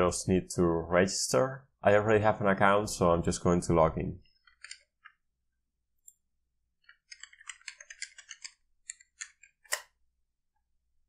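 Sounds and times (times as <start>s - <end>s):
keyboard typing: 4.4s - 5.2s, 6.8s - 9.9s.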